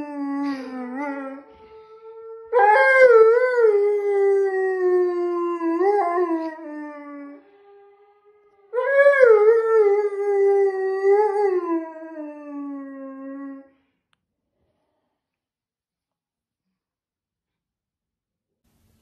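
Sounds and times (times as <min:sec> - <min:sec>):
dog howling: 0:00.0 - 0:13.6.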